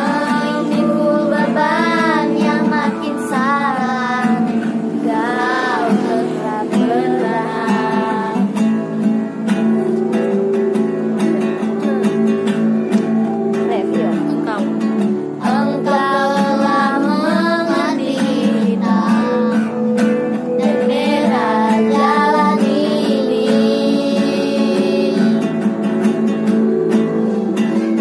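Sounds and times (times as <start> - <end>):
girls singing: 0.0 - 9.0, 15.4 - 25.8
acoustic guitar strumming: 0.0 - 28.0.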